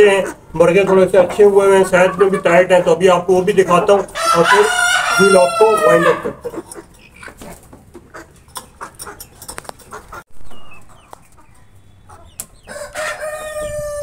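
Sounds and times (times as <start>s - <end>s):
rooster crowing: 4.2s - 6.4s, 12.7s - 14.0s
faint clucks: 6.4s - 12.7s.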